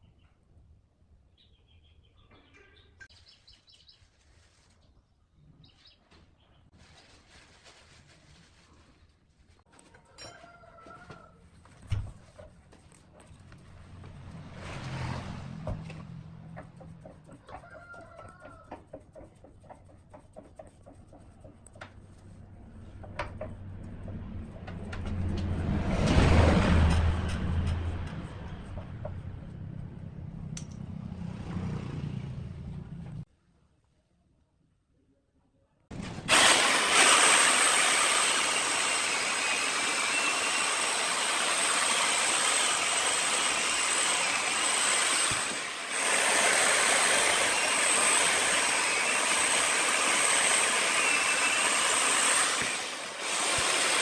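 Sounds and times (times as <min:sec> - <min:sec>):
lathe hum with rushing noise: 0:36.3 - 0:54.0.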